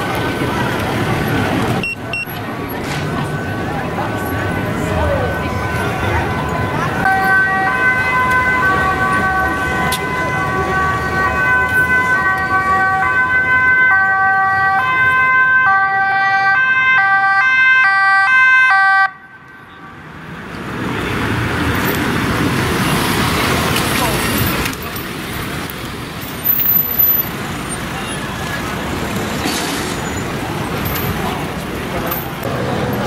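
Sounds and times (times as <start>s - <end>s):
road noise of approaching vehicle: 0.0s - 33.0s
police car two-tone siren: 3.4s - 19.9s.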